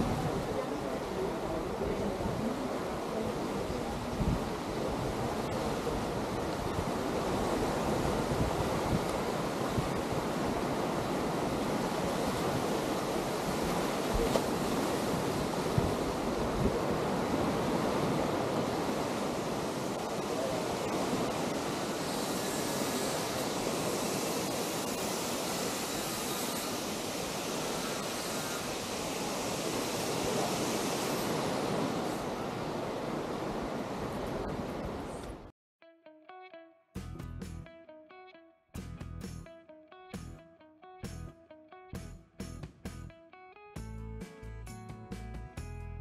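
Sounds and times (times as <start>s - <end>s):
wind buffeting microphone: 0.0s - 26.6s
surf washing on sand beach: 0.0s - 35.5s.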